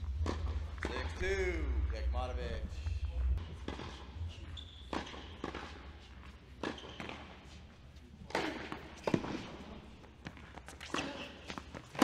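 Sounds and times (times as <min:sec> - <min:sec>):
tennis ball bouncing on hard court: 0:00.1 - 0:01.1, 0:03.5 - 0:04.1, 0:04.9 - 0:07.5, 0:08.2 - 0:12.0.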